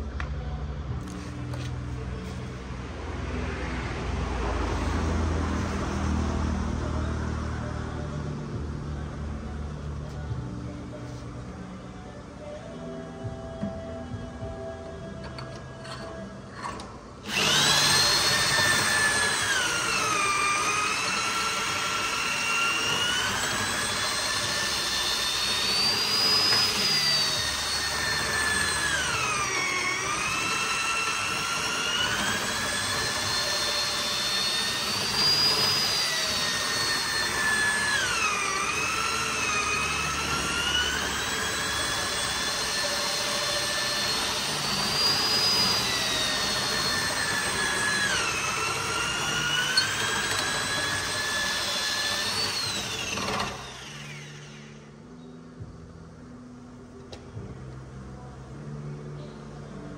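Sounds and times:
electric drill boring through wood: 15.3s - 54.9s.

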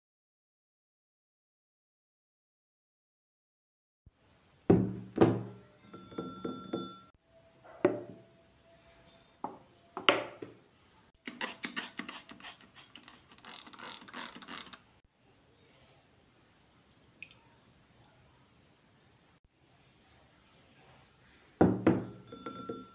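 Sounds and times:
ceramic bowl knocking on marble: 4.7s - 7.0s, 21.6s - 22.9s
spray bottle squirting: 11.2s - 14.8s.

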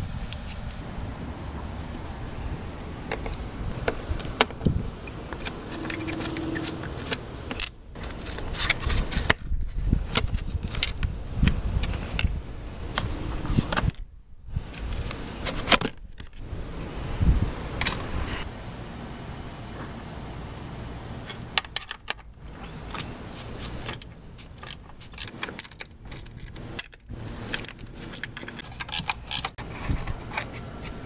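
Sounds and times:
plastic clips clicking and scraping: 23.8s - 29.6s.

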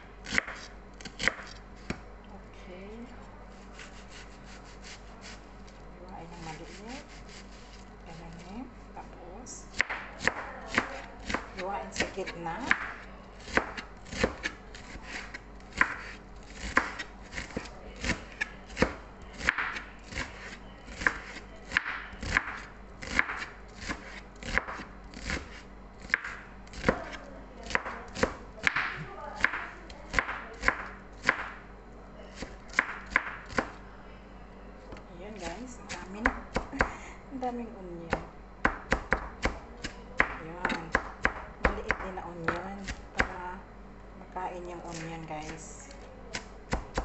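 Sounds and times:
knife chopping on cutting board: 0.2s - 2.0s, 9.7s - 31.6s.

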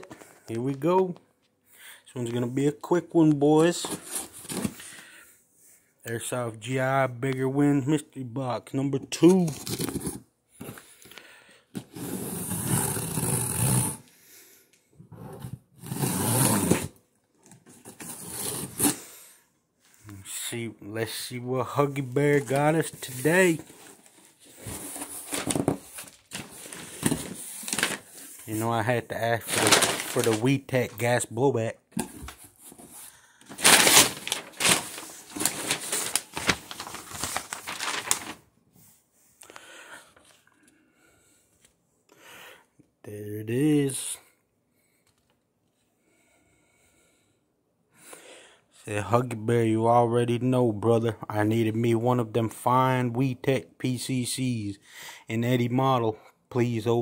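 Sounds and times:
packing paper crinkling: 22.0s - 28.6s, 29.2s - 31.0s, 33.5s - 38.5s.

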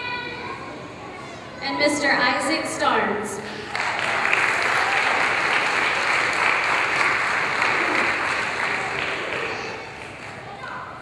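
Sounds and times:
audience applauding: 3.5s - 10.7s.

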